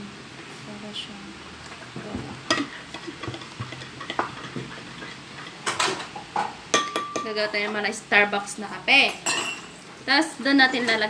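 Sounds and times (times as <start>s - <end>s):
spoon clinking against glass: 6.7s - 7.4s, 9.2s - 9.7s.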